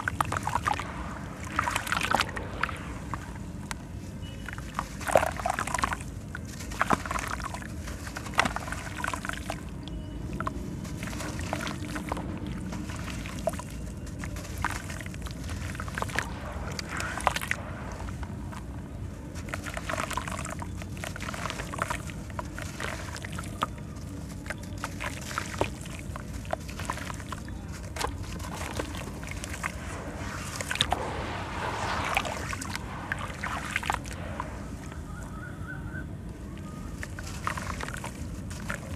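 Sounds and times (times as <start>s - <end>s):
sand falling into water: 0.0s - 9.6s, 11.0s - 23.6s, 24.8s - 35.1s, 37.0s - 38.9s
water sloshing: 24.8s - 35.3s, 37.0s - 38.9s.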